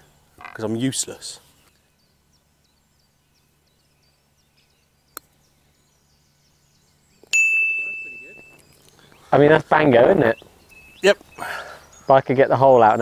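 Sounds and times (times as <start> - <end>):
faint birdsong: 0.0 - 13.0
sharp metallic clink ringing: 7.3 - 8.7.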